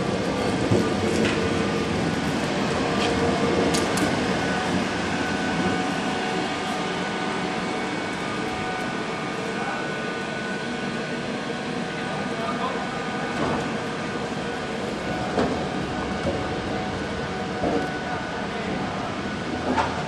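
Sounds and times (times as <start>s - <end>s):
tram wheels rumbling: 0.0s - 12.5s, 13.2s - 20.0s.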